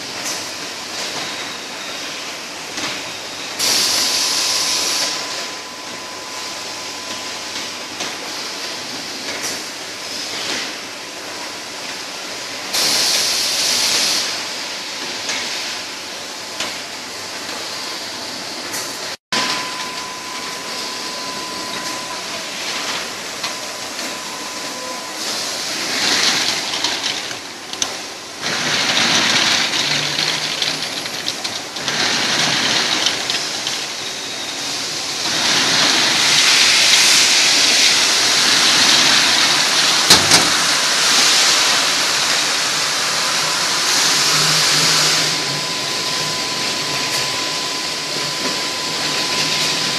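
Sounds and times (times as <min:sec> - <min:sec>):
bottling machinery noise: 0:00.0 - 0:49.9
thin steady whine: 0:19.4 - 0:49.9.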